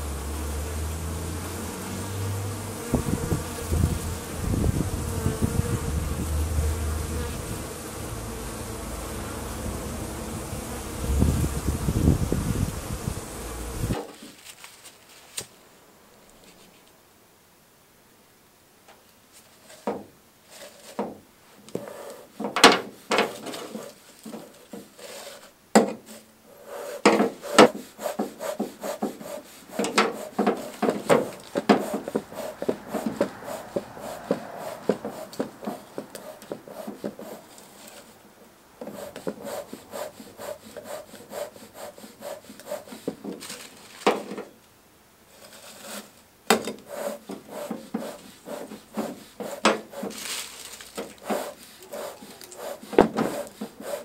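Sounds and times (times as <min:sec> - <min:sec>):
newspaper and dry grass rustling: 0:11.1 - 0:17.0, 0:19.1 - 0:44.6, 0:45.3 - 0:54.0
knocks and scrapes against metal: 0:21.8 - 0:26.2, 0:27.0 - 0:38.2, 0:42.5 - 0:44.6, 0:45.4 - 0:54.0.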